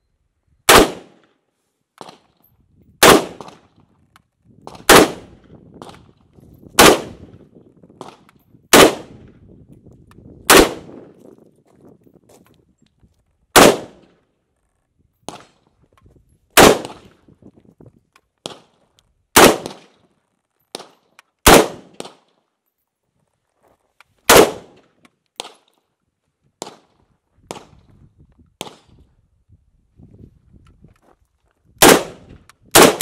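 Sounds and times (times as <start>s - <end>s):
rifle shots with echo: 0.7s - 1.3s, 3.0s - 3.8s, 4.7s - 6.1s, 6.8s - 7.4s, 8.0s - 9.3s, 10.5s - 11.2s, 13.6s - 14.2s, 16.6s - 17.1s, 19.4s - 20.0s, 20.7s - 22.4s, 24.3s - 25.7s, 31.8s - 33.0s.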